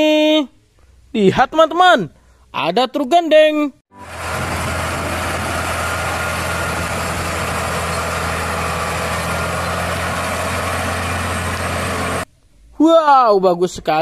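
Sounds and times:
diesel truck engine droning: 3.9 - 12.3
road noise rumble: 4.0 - 12.3.

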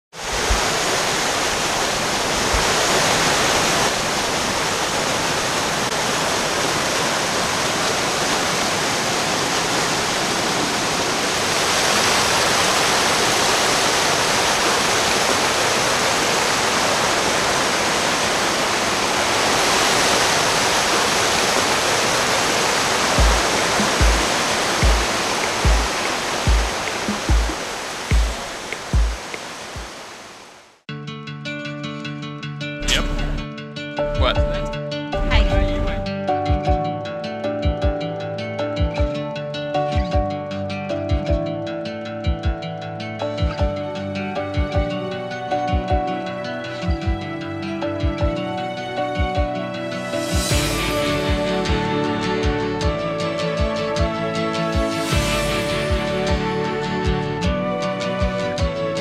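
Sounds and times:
whitewater splashing over boulders: 0.2 - 30.6
deep music beat: 23.2 - 29.4, 34.1 - 36.8.

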